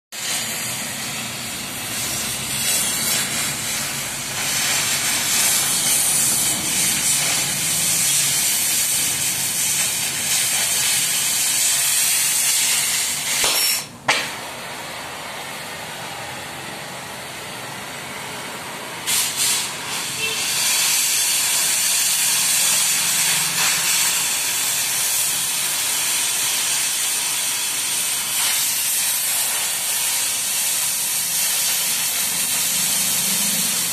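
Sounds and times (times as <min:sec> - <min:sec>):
gas cutting torch hissing: 0:00.1 - 0:33.9
torch sharp pop: 0:00.2 - 0:14.5, 0:19.1 - 0:25.6, 0:28.0 - 0:32.4.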